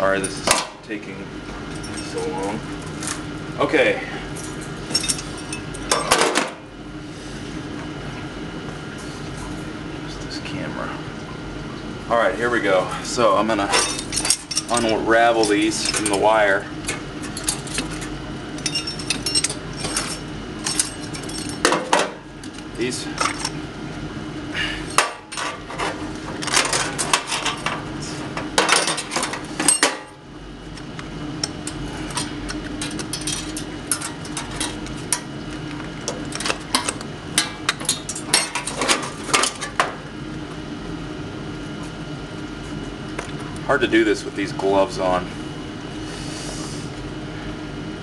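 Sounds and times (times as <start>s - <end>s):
steady hum: 0.0s - 48.0s
metal tools clinking: 1.7s - 2.3s, 4.4s - 6.2s, 13.7s - 16.3s, 17.3s - 18.0s, 18.6s - 22.1s, 23.1s - 23.6s, 28.6s - 30.1s, 31.6s - 34.9s, 36.3s - 39.8s.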